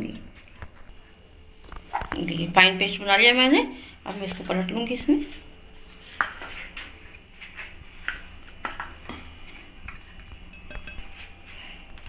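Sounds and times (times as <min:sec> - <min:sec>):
steel clinking on steel plate: 0:10.5 - 0:11.2.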